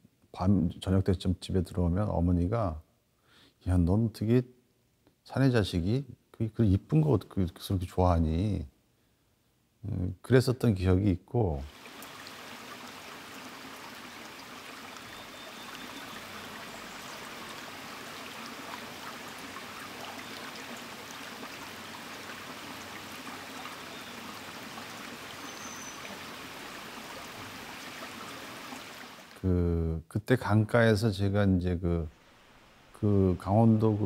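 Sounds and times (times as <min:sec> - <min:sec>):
stream flowing over stones: 0:11.7 - 0:29.4.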